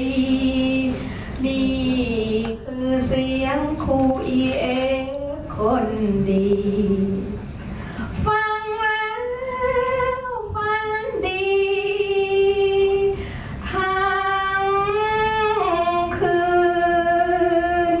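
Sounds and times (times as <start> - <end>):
woman singing: 0.0 - 7.4, 8.2 - 18.0.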